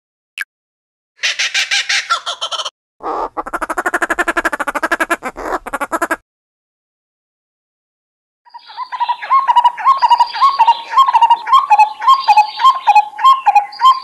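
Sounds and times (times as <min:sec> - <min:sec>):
bird rattling squawks: 0:01.2 - 0:06.2.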